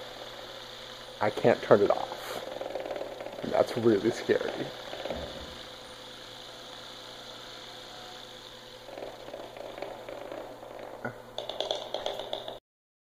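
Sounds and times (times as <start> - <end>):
rattly ticks: 0.0 - 7.6, 8.3 - 12.6
robot spinning with whir: 0.0 - 12.6.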